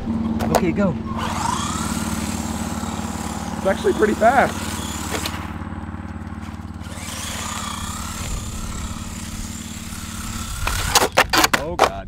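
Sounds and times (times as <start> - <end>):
small engine running: 0.0 - 11.6
faint wavering whine: 1.0 - 11.0.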